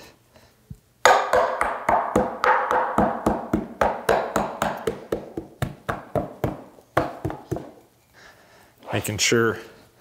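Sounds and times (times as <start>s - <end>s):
hammer tapping leather: 1.1s - 7.8s.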